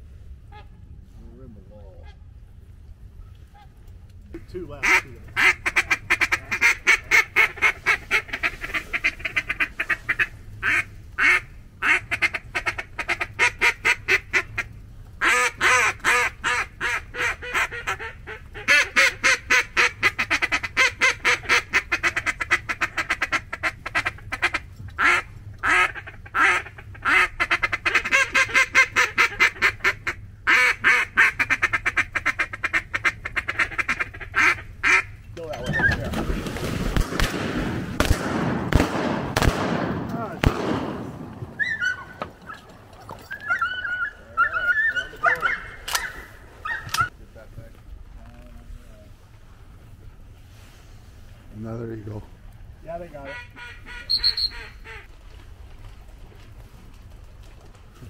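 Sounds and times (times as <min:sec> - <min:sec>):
duck call quacking notes: 0:04.8 - 0:35.1, 0:53.2 - 0:55.1.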